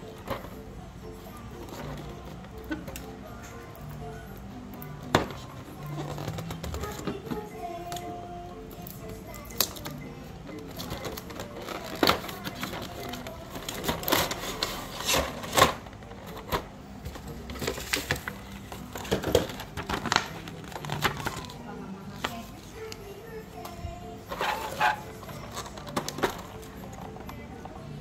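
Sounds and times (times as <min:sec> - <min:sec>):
paper sheet rustling: 0:17.5 - 0:22.6.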